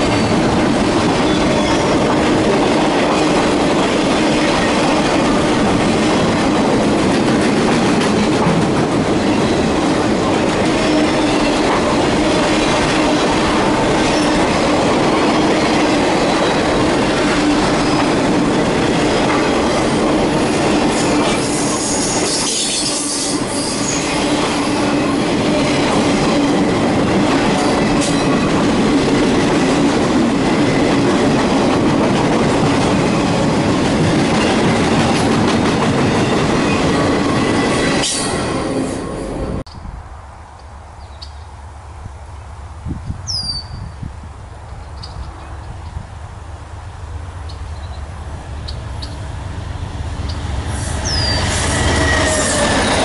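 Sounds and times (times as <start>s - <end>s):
freight train rumbling past: 0.0s - 53.0s
high wheel squeal: 50.3s - 53.0s.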